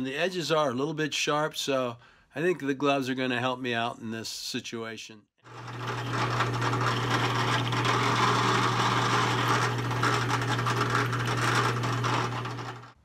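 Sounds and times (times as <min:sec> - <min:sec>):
drill bit drilling sheet metal: 0:05.5 - 0:13.0
drill press motor hum: 0:05.5 - 0:13.0.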